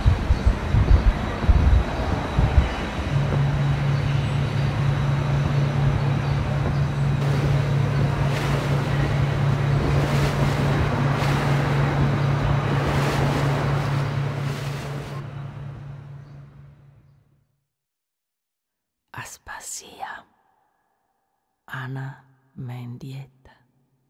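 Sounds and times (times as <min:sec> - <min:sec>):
dense rushing noise: 0:00.0 - 0:16.0
low hum: 0:00.0 - 0:17.5.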